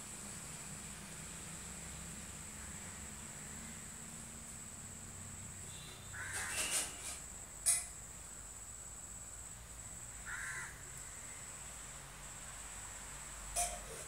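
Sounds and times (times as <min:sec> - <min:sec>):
crow cawing: 0:06.1 - 0:06.7, 0:10.2 - 0:10.9.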